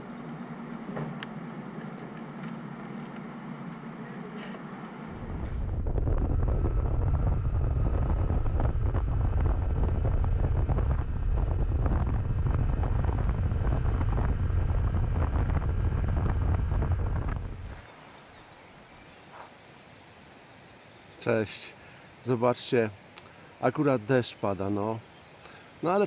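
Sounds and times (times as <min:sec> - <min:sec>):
motorcycle riding rumble: 0:00.0 - 0:17.9
wind on microphone: 0:05.1 - 0:17.8.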